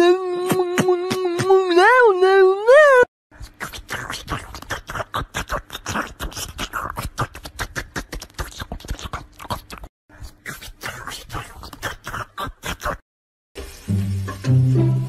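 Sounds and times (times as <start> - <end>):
kitten sucking and licking: 3.4 - 13.0.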